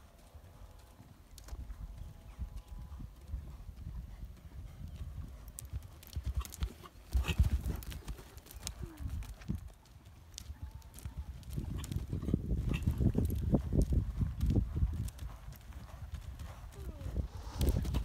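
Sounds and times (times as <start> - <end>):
horse hoofbeats cantering: 0.0 - 17.1.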